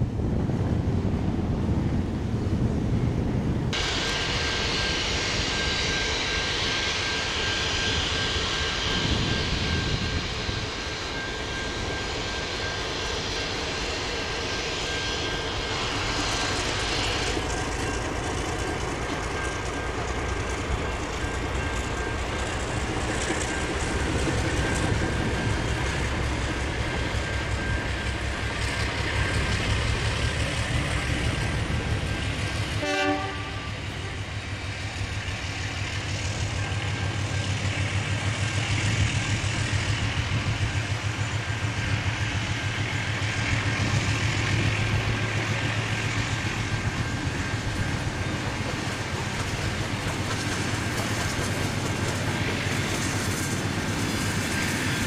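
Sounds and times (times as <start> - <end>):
low locomotive rumble: 0.0 - 55.0
steam hissing from locomotive: 3.8 - 55.0.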